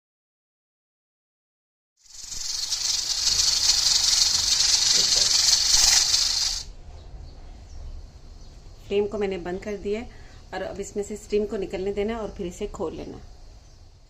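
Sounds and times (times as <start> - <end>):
pressure cooker steam hissing: 2.0 - 6.7.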